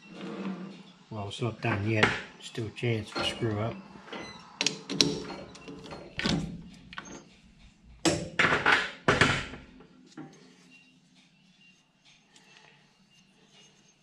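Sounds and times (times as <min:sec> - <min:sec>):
metal knocks and clunks: 0:03.1 - 0:04.2, 0:08.0 - 0:09.8.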